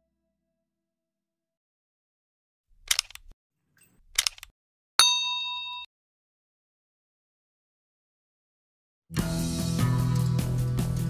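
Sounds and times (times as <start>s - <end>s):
bright bell ding: 5.0s - 5.9s.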